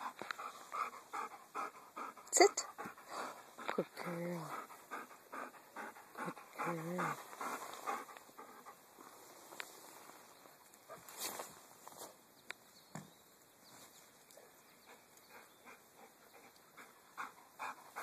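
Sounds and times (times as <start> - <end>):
dog panting faintly: 0.0 - 9.2, 14.4 - 18.0
distant birds chirping: 12.3 - 17.9.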